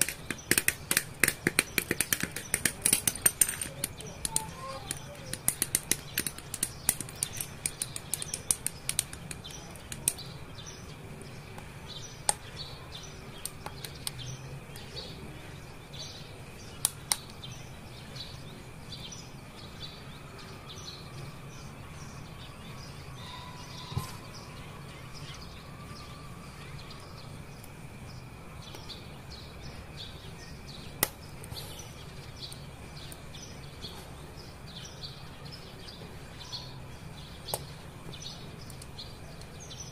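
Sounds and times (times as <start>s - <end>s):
plastic parts snapping together: 0.0s - 10.2s
birds chirping: 0.0s - 39.9s.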